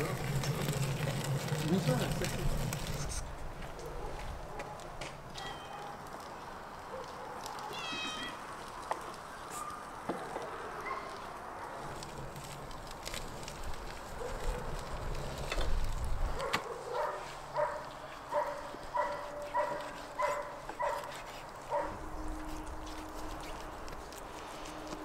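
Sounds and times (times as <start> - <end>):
dog barking: 6.9 - 7.8, 10.8 - 11.8, 14.2 - 14.7, 16.4 - 22.0.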